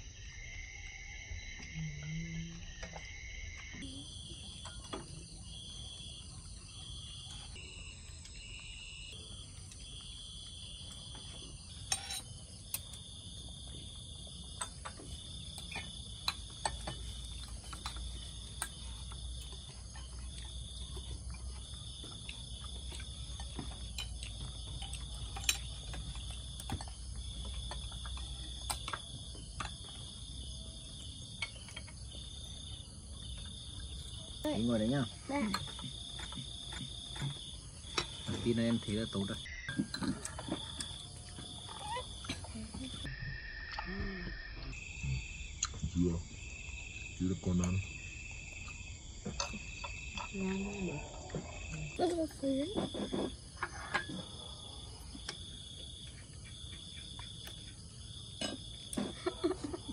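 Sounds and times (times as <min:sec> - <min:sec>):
night insects trilling: 0:00.0 - 0:59.9.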